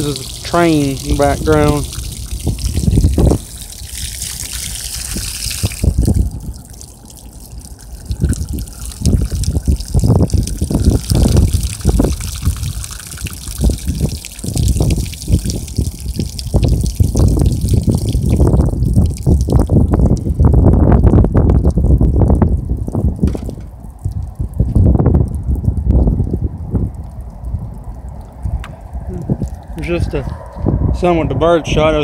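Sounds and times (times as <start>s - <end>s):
water spraying onto grass: 0.0s - 30.2s
water pouring onto wooden board: 0.0s - 30.6s
loud low rumbles: 15.4s - 32.0s.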